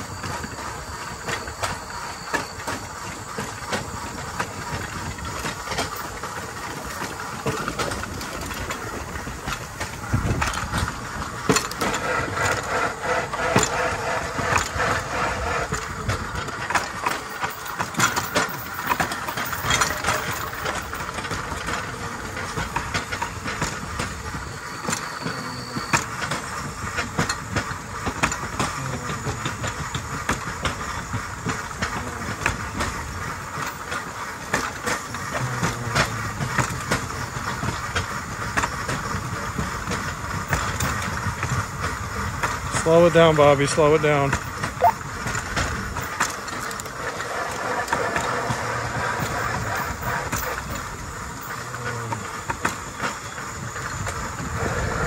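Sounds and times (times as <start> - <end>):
steel wheels rolling on track: 0.0 - 55.0
wheels clacking over rail joints: 0.0 - 55.0.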